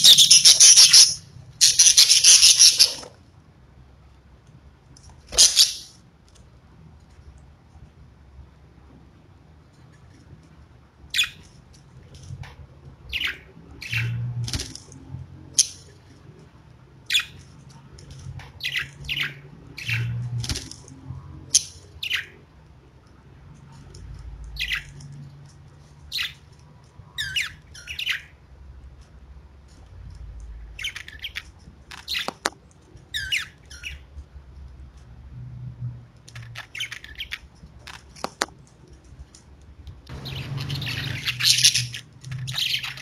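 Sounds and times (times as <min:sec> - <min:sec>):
budgerigars chirping and squawking: 0:00.0 - 0:03.1, 0:05.3 - 0:06.0, 0:13.1 - 0:14.2, 0:18.6 - 0:20.2, 0:21.5 - 0:22.3, 0:26.1 - 0:26.4, 0:27.2 - 0:28.3, 0:30.8 - 0:31.4, 0:33.1 - 0:34.0, 0:36.6 - 0:37.4, 0:40.1 - 0:43.0.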